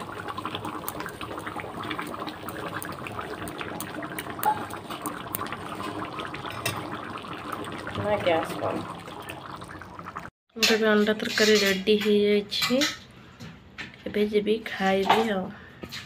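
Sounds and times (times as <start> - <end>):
curry bubbling and popping: 0.0 - 10.4.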